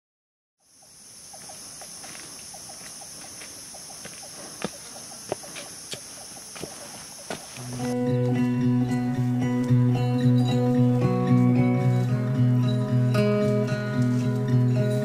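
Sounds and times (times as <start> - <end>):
insects droning: 0.6 - 15.0
footsteps on dry leaves: 1.4 - 8.5, 10.5 - 15.0.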